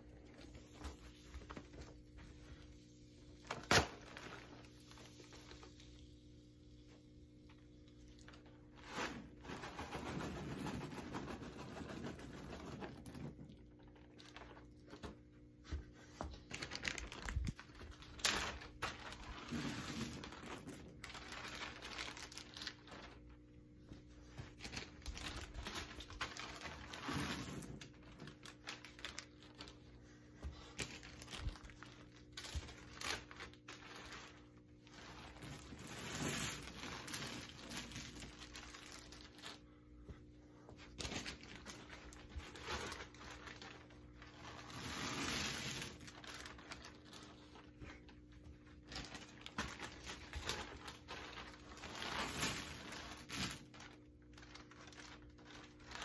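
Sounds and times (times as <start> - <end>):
popcorn bags crinkling: 7.5 - 15.2, 16.4 - 23.5, 24.5 - 29.9, 30.6 - 39.6, 40.8 - 56.0.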